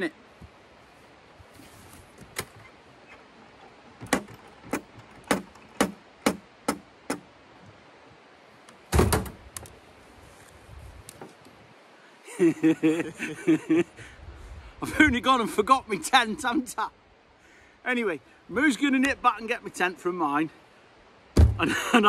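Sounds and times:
sharp clicks and knocks: 4.0s - 7.3s
heavy thump: 8.9s - 9.4s, 21.4s - 21.7s.

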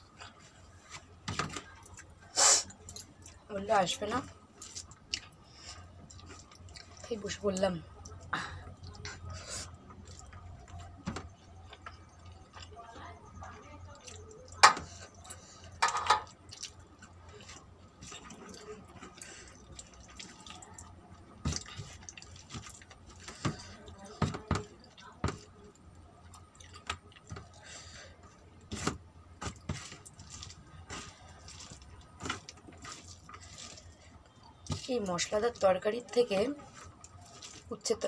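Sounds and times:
food squished by hand: 16.2s - 35.6s, 36.6s - 38.0s.

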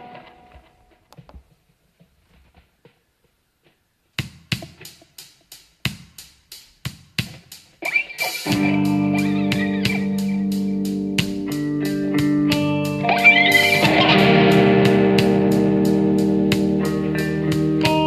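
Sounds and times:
drum beat: 4.2s - 15.8s, 17.4s - 18.0s
electric guitar note ringing: 7.9s - 18.0s.

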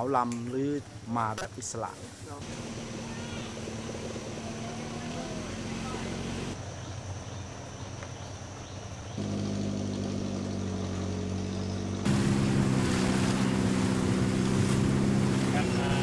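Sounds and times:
boat engine running: 2.4s - 6.6s, 9.2s - 16.0s.

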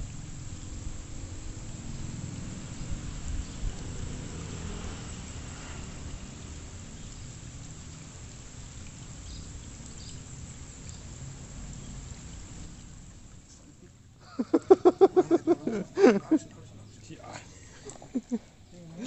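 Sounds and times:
steady low rumble: 0.0s - 14.0s
pond water splashing: 0.0s - 19.0s.

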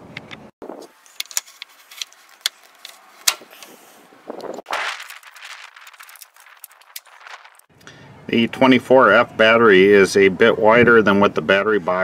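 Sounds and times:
rustle: 0.7s - 7.7s.

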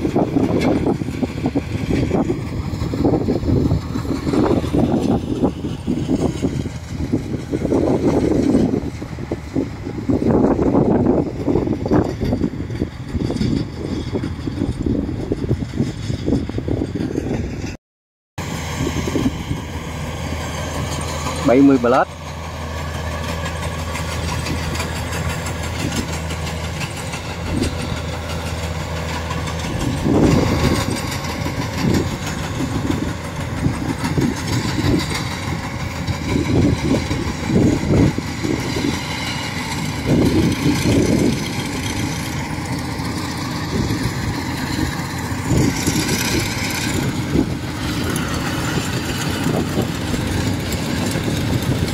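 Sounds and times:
combine harvester engine droning: 0.0s - 17.8s, 18.4s - 51.9s
people talking: 21.4s - 22.1s.

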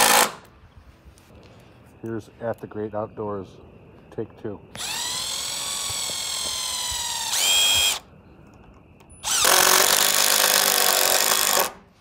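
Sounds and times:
cordless drill whining: 4.7s - 8.0s, 9.2s - 11.8s.

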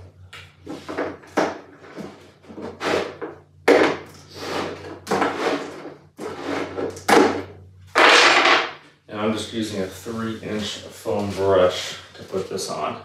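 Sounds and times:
objects knocking and clattering: 0.7s - 8.8s.

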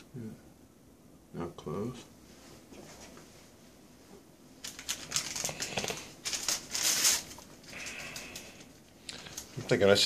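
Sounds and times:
paper or plastic crinkling: 4.6s - 9.7s.

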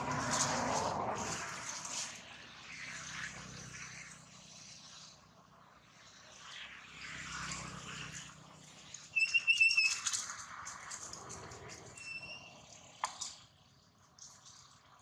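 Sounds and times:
rustling in dry leaves: 0.0s - 3.1s
high thin whistle-like call: 9.1s - 10.2s, 12.0s - 12.6s.

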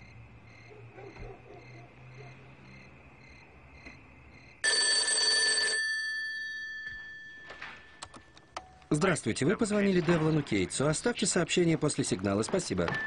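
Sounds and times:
insects chirping: 0.0s - 4.6s
telephone bell ringing: 4.6s - 8.4s.

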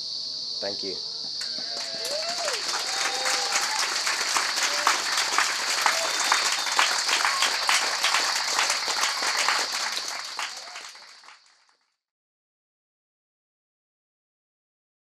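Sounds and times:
cicadas droning: 0.0s - 11.6s
faint voices: 0.7s - 11.0s
audience clapping: 1.4s - 11.9s.

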